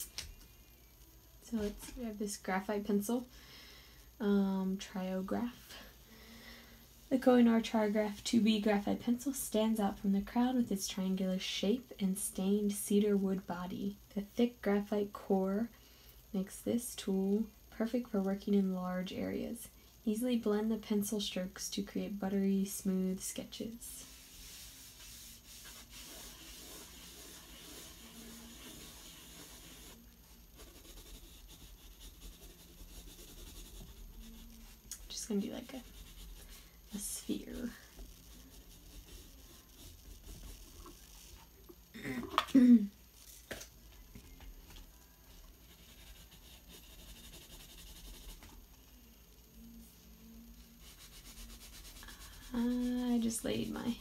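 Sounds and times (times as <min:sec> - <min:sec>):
pencil scratching on paper: 0:24.0 - 0:30.0, 0:30.6 - 0:41.4, 0:45.6 - 0:48.5, 0:50.8 - 0:53.8.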